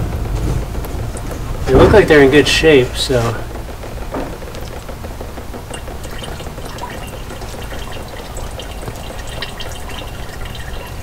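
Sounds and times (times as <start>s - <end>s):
small drip ticks: 3.8s - 11.0s
fluid trickling into plastic jug: 5.7s - 11.0s.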